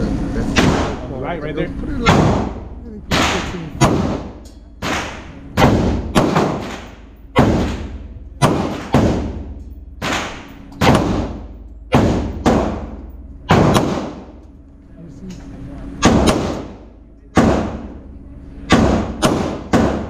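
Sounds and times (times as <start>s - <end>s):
handgun shots echoing: 2.0s - 14.4s, 16.0s - 16.8s.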